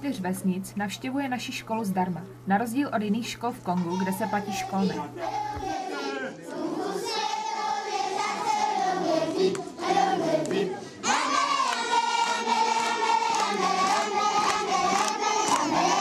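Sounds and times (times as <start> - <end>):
children's choir singing: 3.9 - 16.0.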